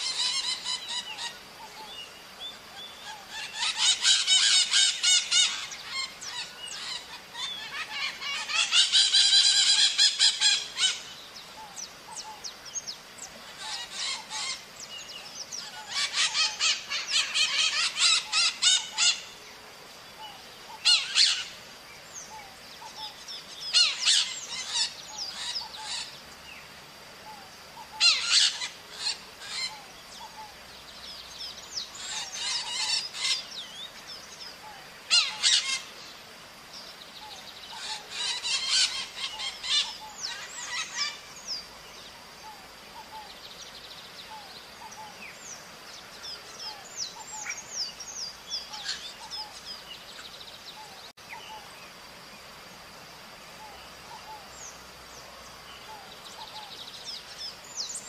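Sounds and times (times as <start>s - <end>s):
parrots screeching: 3.3s - 11.0s, 13.5s - 14.6s, 15.6s - 19.2s, 20.8s - 21.5s, 23.7s - 26.1s, 28.0s - 29.8s, 32.0s - 33.4s, 35.1s - 35.9s, 37.8s - 41.2s.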